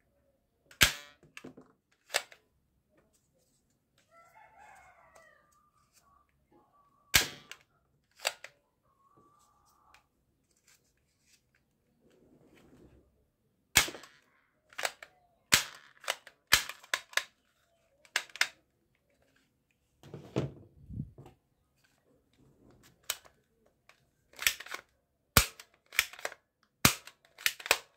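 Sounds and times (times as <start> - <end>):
toy shotgun plastic clacks: 13.9 - 17.4, 18.0 - 18.6, 24.3 - 27.9.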